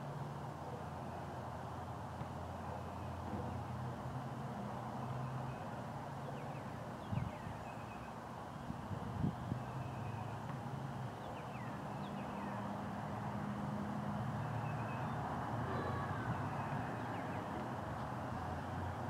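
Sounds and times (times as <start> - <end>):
vehicle engine humming: 12.4 - 19.0.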